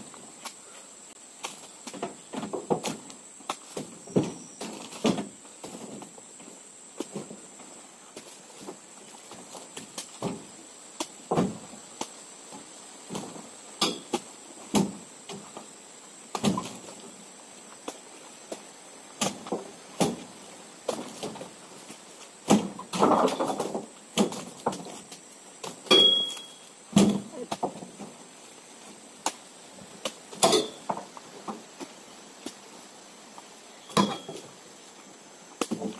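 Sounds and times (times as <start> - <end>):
fruit bunches thudding into truck bed: 1.8 - 7.4, 8.2 - 10.5, 11.2 - 11.8, 13.1 - 15.5, 16.3 - 17.0, 19.2 - 21.6, 22.4 - 26.3, 26.9 - 28.2, 35.6 - 35.9
rattling clatter of bunches landing: 20.9 - 25.1.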